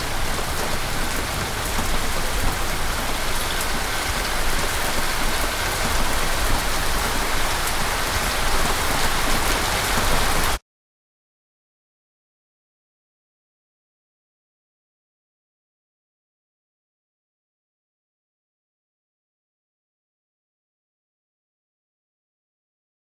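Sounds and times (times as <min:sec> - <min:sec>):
raindrops ticking: 0:00.0 - 0:10.6
steady rain falling: 0:00.0 - 0:10.6.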